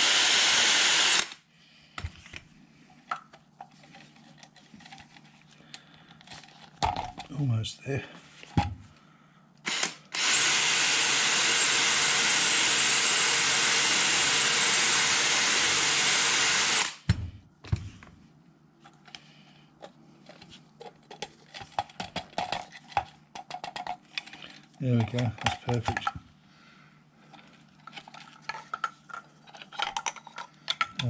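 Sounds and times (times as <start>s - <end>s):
power drill sanding whine: 0.0s - 1.4s, 9.7s - 17.0s.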